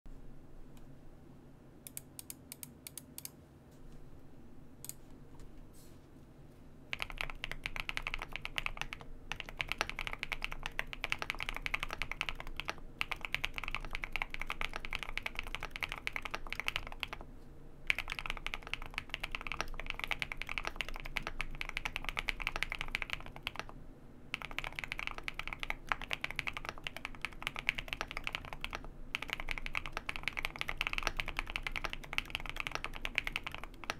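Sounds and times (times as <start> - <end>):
typing on a mechanical keyboard: 6.9 - 17.2, 17.9 - 23.7, 24.3 - 33.9.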